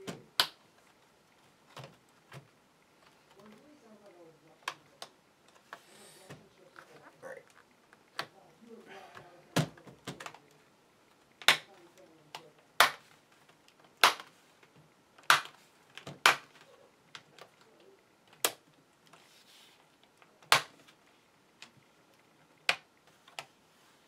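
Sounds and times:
plastic clips snapping: 0:18.3 - 0:18.6.

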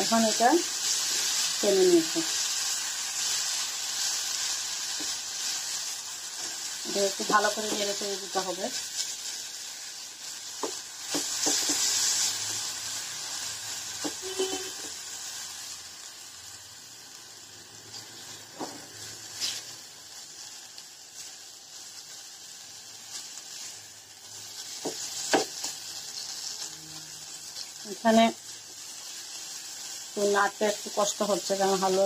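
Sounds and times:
food sizzling in a frying pan: 0:00.0 - 0:32.0.

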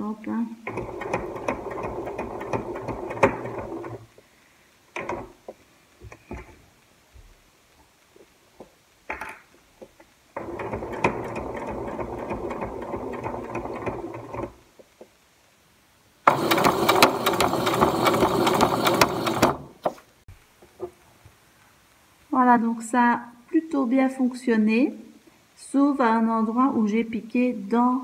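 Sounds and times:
sewing machine stitching: 0:00.6 - 0:04.1, 0:04.9 - 0:05.4, 0:10.4 - 0:14.6, 0:16.3 - 0:20.0.

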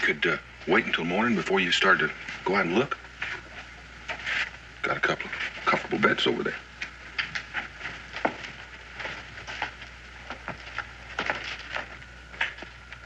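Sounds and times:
faint hum: 0:00.0 - 0:13.0
child's light footsteps: 0:06.8 - 0:13.0.

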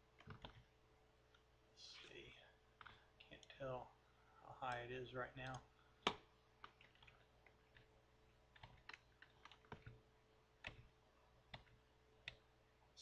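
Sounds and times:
computer keys clicking: 0:00.2 - 0:00.7, 0:04.7 - 0:07.9, 0:08.5 - 0:10.0, 0:10.6 - 0:12.5.

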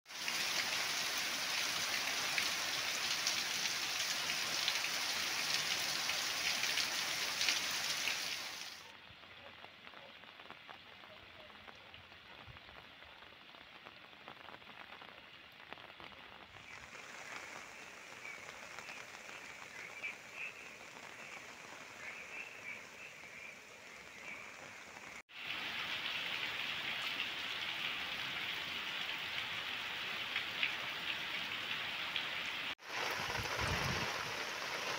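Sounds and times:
heavy rain hissing: 0:14.2 - 0:31.2, 0:32.8 - 0:34.9.

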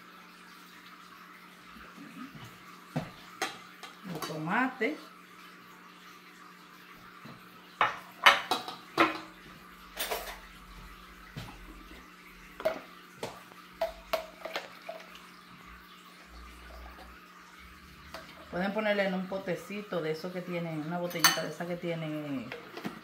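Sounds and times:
metal tongs and dishes clinking: 0:21.1 - 0:21.6.

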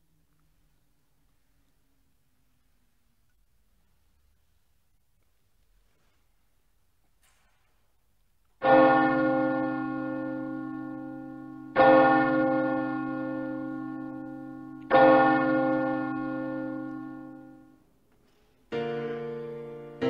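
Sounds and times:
deep church bell ringing: 0:08.6 - 0:17.9, 0:18.8 - 0:20.0.

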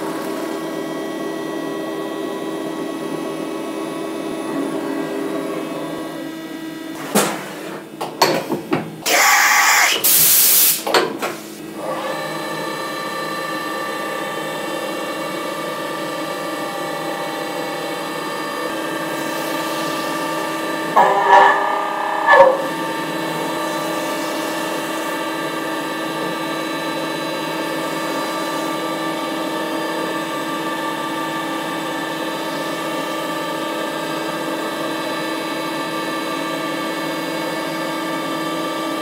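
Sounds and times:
milling machine spindle whine: 0:09.0 - 0:10.2, 0:12.1 - 0:30.4
end mill cutting: 0:16.3 - 0:25.2.

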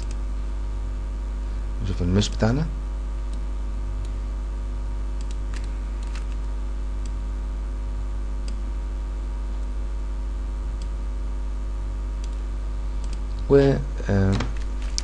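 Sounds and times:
computer mouse clicks: 0:00.0 - 0:00.2, 0:05.2 - 0:06.4, 0:08.4 - 0:08.6, 0:12.2 - 0:12.4, 0:13.0 - 0:13.5
low electrical hum: 0:00.0 - 0:15.0.

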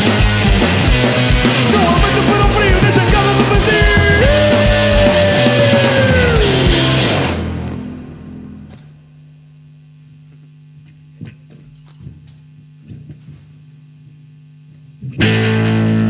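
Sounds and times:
electric bass and drums: 0:00.0 - 0:08.8
amplifier hum: 0:00.0 - 0:16.0.

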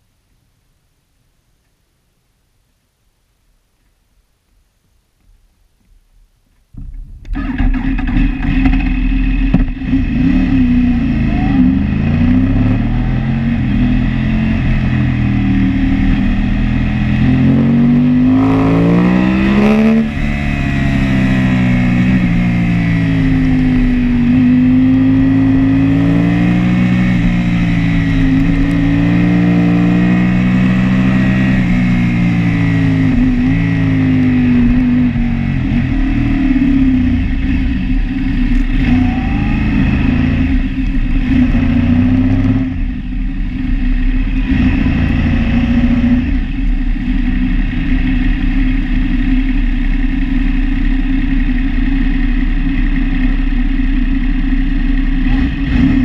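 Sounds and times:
motorcycle engine revving: 0:07.2 - 0:56.0.

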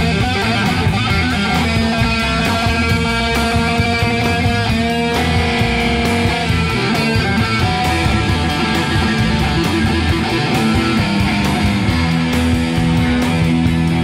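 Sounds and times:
blues rock band playing: 0:00.0 - 0:14.0
electric guitar: 0:00.0 - 0:14.0.

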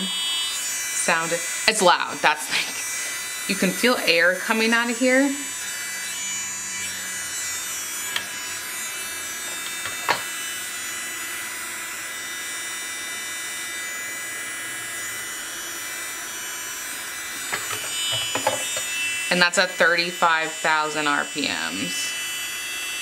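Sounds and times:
electric nail drill whine: 0:00.0 - 0:23.0.

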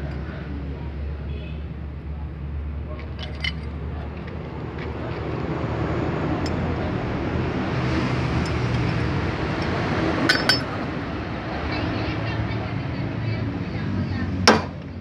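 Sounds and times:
low engine hum: 0:00.0 - 0:15.0
vehicle passing: 0:03.7 - 0:15.0.

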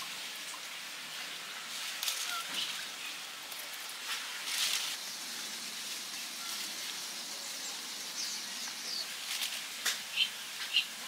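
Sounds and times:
steady outdoor hiss: 0:00.0 - 0:11.0
rustling: 0:03.6 - 0:05.0.

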